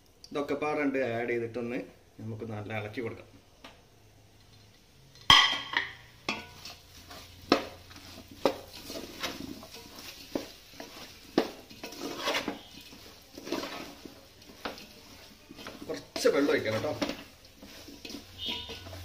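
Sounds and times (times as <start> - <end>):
spoon scraping metal pot: 6.3 - 19.0.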